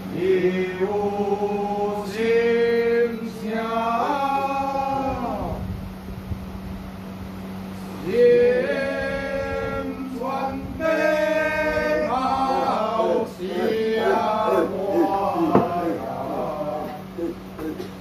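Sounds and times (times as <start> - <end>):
steady low hum: 0.0 - 18.0
man chanting: 8.0 - 17.8.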